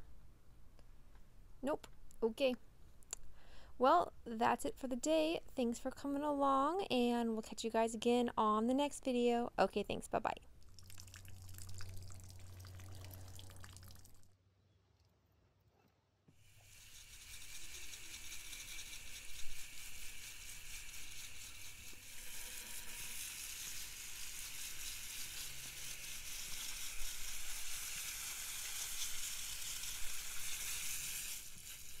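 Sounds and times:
hose spray nozzle hissing: 16.4 - 32.0.

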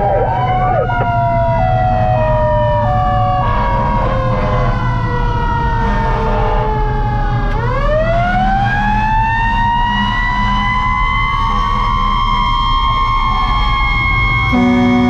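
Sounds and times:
siren falling wail: 0.0 - 15.0
truck engine rumble: 0.0 - 15.0
two-tone siren: 0.0 - 15.0.

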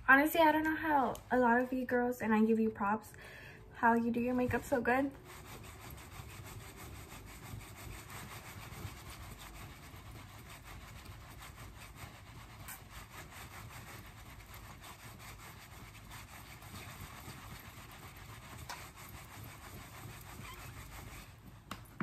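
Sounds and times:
makeup brush rubbing skin: 3.9 - 21.7.

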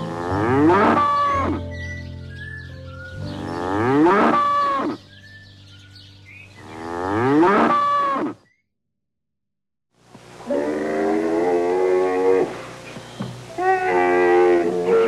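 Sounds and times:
cattle mooing: 0.0 - 1.6, 3.6 - 5.0, 6.7 - 8.4, 10.5 - 12.6, 13.5 - 15.0.

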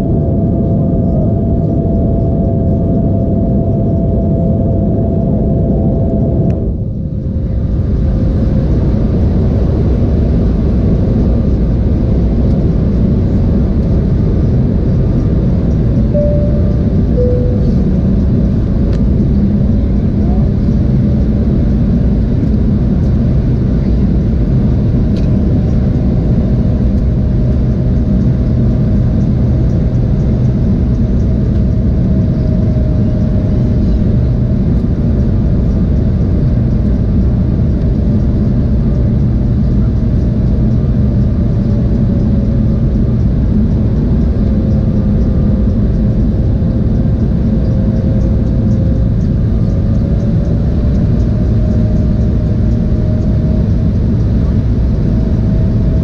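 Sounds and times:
jet engine drone: 0.0 - 56.0.

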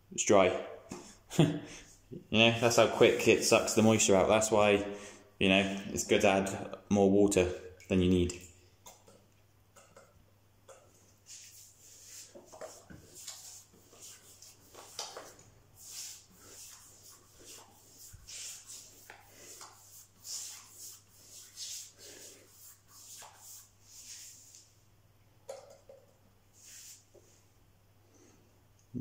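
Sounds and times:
paintbrush swishing on wall: 2.4 - 4.3, 10.7 - 24.8, 26.5 - 27.5
brush tapping paint bucket: 8.2 - 24.2, 25.4 - 26.3.

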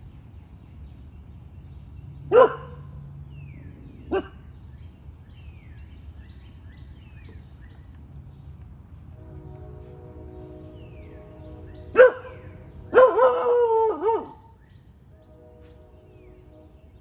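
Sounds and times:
puppy barking: 2.3 - 2.9, 4.1 - 4.4, 12.0 - 14.4.

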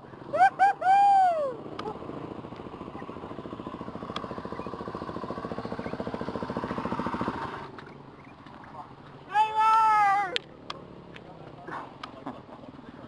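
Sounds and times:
dirt bike engine idling: 0.0 - 13.0.

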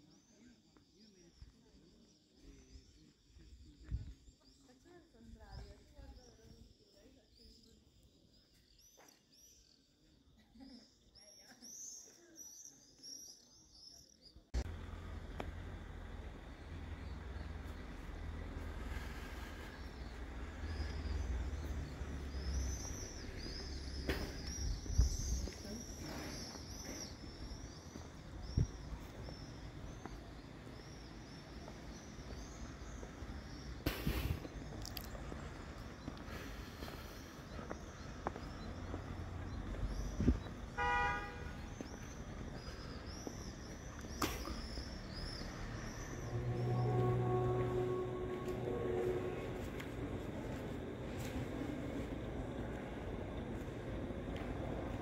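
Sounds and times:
low outdoor rumble: 14.6 - 55.0
swifts chirping: 16.0 - 51.5
rushing noise with deep rumble: 45.0 - 55.0.

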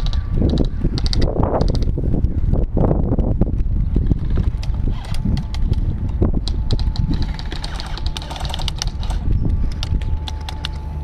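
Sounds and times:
sharp clicks and taps: 0.0 - 1.9
wind rumbling on microphone: 0.0 - 11.0.

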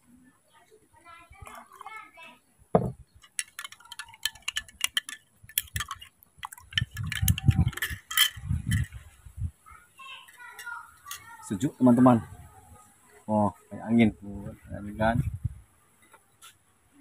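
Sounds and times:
low thump: 2.8 - 3.0
spoon clinking against glass: 3.2 - 9.0.

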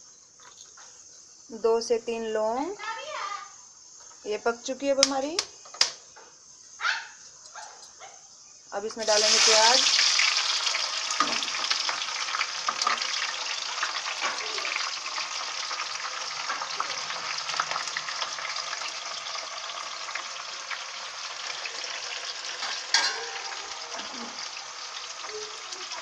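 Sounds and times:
onion sizzling in hot oil: 8.3 - 26.0.

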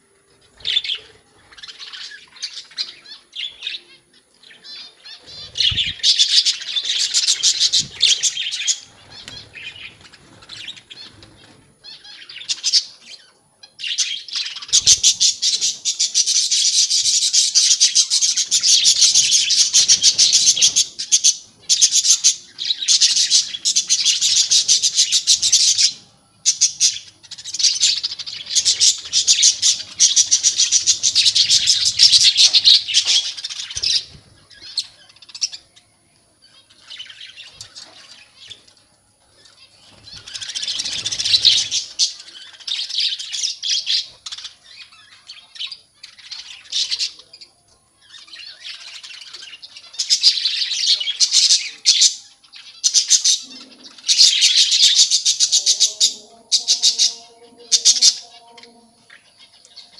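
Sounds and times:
budgerigars chattering: 14.6 - 34.1.

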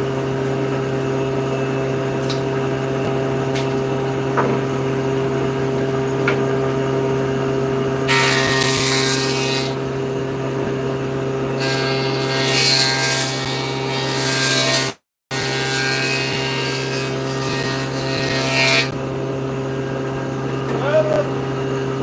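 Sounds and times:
table saw motor humming: 0.0 - 22.0
saw blade cutting wood: 8.1 - 9.8, 11.3 - 19.0.

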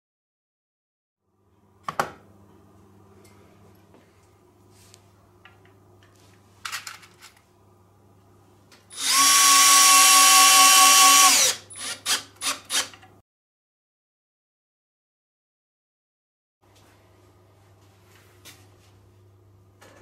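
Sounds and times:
power drill motor whining: 8.9 - 13.0.

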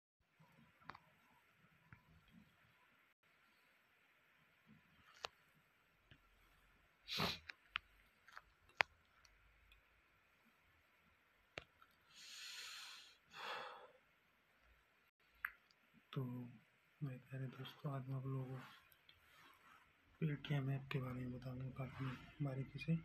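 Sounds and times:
person sniffing: 7.1 - 7.5, 12.1 - 13.9
person breathing: 12.1 - 14.0.

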